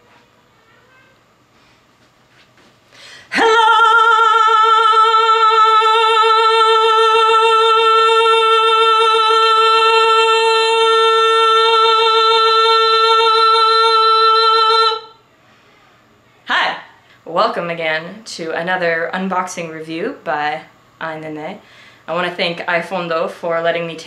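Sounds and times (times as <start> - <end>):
woman singing operatic note: 3.3 - 15.2.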